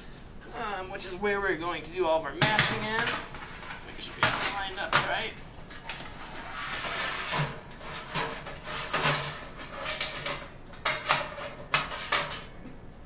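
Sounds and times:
metal pipe scraping inside kettle: 6.0 - 12.4.

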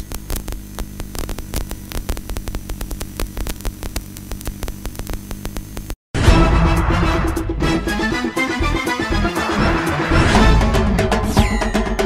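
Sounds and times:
crackling clicks: 0.0 - 6.0
electrical hum: 0.0 - 6.0
loud music: 6.2 - 12.0.

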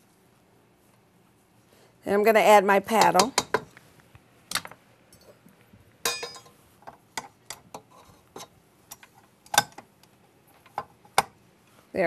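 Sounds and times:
ringing metal clink: 6.0 - 6.5.

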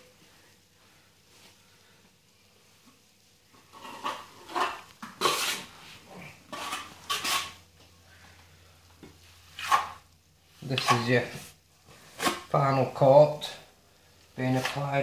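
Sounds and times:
steel trowel scraping plaster: 3.7 - 5.7, 6.5 - 7.6, 9.5 - 10.0.

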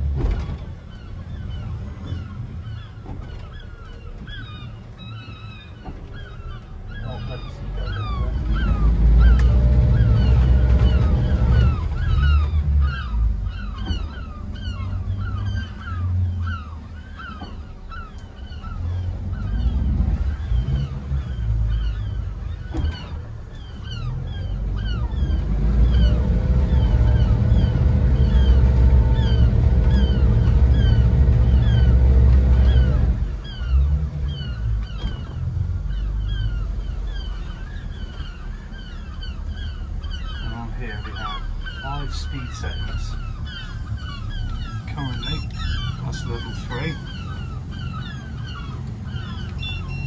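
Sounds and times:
outboard engines rumbling: 0.0 - 50.0
high-pitched falling calls: 35.8 - 50.0.

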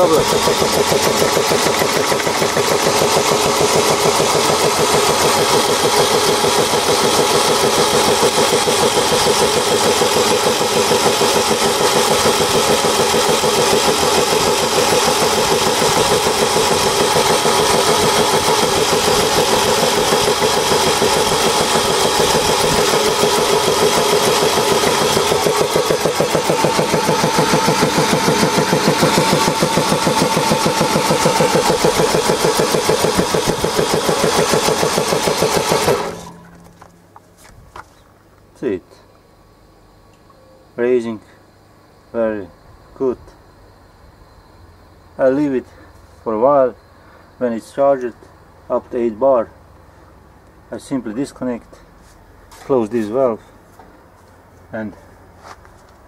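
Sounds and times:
air compressor chugging: 0.0 - 38.0.

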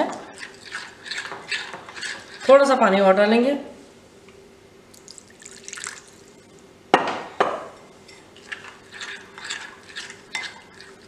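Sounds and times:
spoon stirring in glass bowl: 0.0 - 2.7, 8.0 - 11.0
water pouring from a jug: 5.0 - 6.4.

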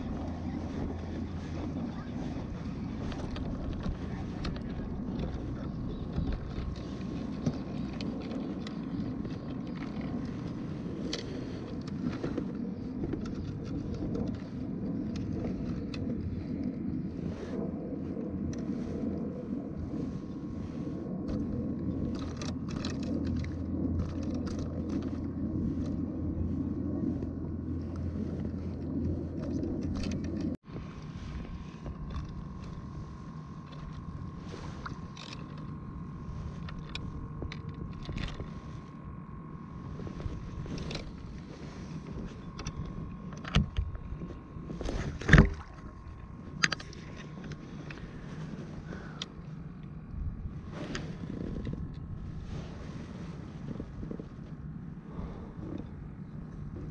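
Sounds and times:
low hum with high tone: 0.0 - 56.9.

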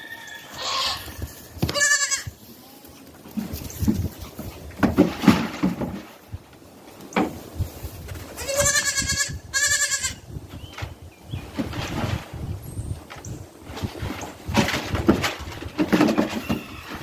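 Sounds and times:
baby goat bleating: 0.5 - 3.0, 8.4 - 10.2
soft thumps and rustling: 3.2 - 8.3, 13.1 - 17.0.

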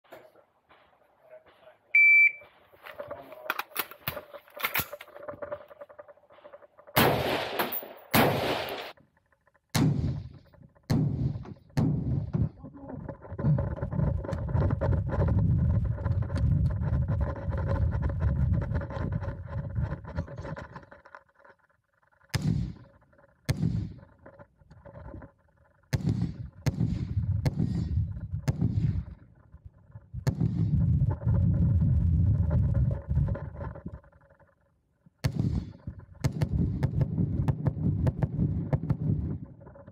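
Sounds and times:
gunshot cracks: 7.0 - 9.0
wind rumble on microphone: 12.0 - 20.8, 26.1 - 34.1, 35.4 - 39.9.

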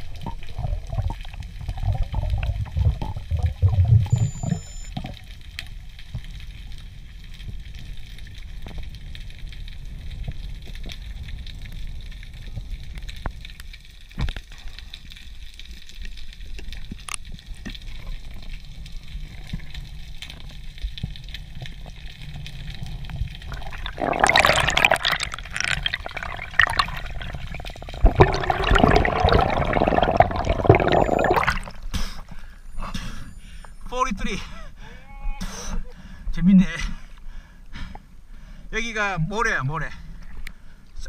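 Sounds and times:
underwater rushing and bubbling: 0.0 - 32.4.

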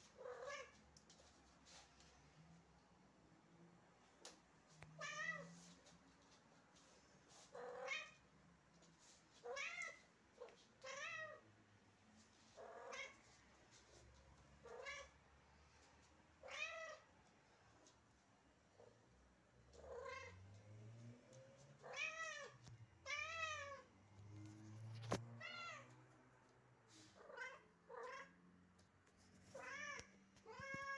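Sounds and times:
cat meowing: 0.2 - 0.8, 5.0 - 5.6, 7.6 - 8.2, 9.4 - 11.4, 12.6 - 13.2, 14.6 - 15.2, 16.4 - 17.1, 19.8 - 20.4, 21.8 - 23.9, 25.4 - 26.0, 27.2 - 28.4, 29.5 - 30.9.

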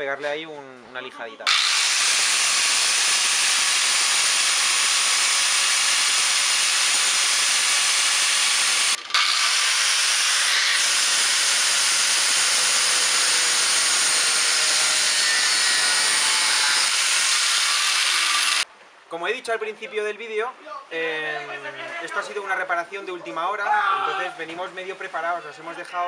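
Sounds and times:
angle grinder cutting: 1.5 - 18.6.

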